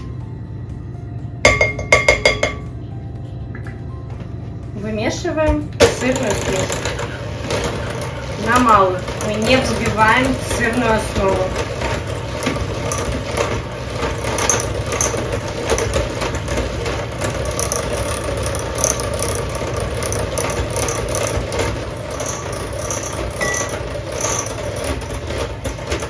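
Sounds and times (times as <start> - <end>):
electric hand mixer running: 5.8 - 26.0
mixer beaters clicking rattle: 5.8 - 26.0.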